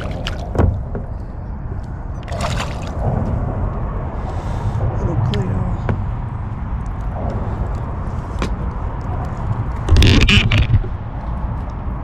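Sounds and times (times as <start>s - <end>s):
short splashes: 0.0s - 0.8s, 2.2s - 3.0s
water splashing against kayak: 0.0s - 1.2s, 2.2s - 3.2s
steady low rumble: 0.0s - 12.0s.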